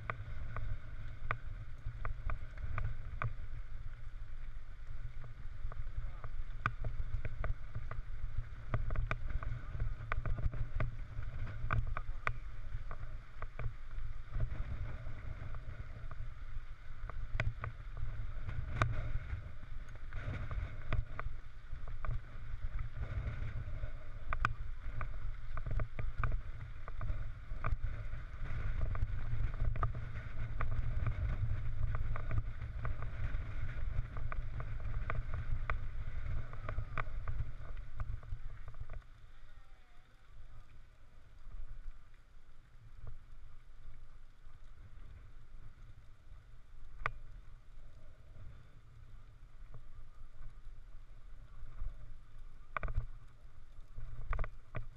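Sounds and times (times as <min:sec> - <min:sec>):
wind buffeting microphone: 0:00.0 - 0:39.0
bike rolling on gravel: 0:00.0 - 0:54.9.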